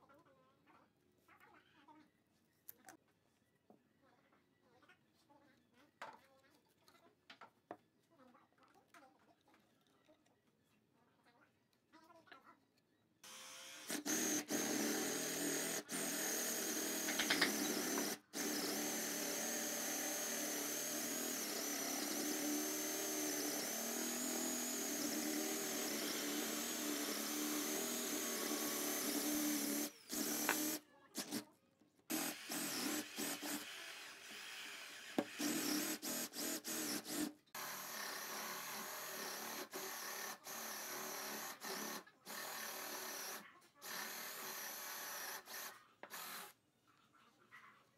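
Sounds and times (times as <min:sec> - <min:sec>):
cordless drill whining: 0:13.2 - 0:31.4, 0:32.1 - 0:46.5.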